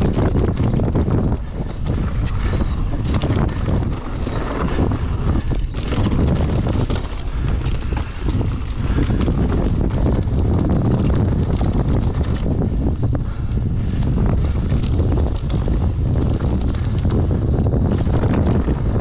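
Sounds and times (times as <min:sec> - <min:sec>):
bike rattling over bumps: 0:00.0 - 0:19.0
tyres running over dirt: 0:00.0 - 0:19.0
wind buffeting microphone: 0:00.0 - 0:19.0.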